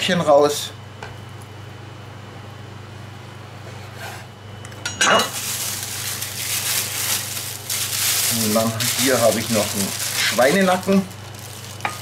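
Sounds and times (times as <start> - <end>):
low steady hum: 0.0 - 12.0
plastic bag crinkling: 5.3 - 12.0.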